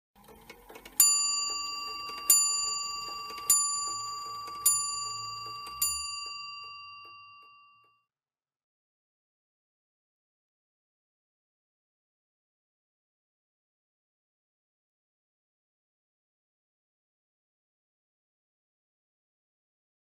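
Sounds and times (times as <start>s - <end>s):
clock striking bell tones: 0.3s - 8.0s.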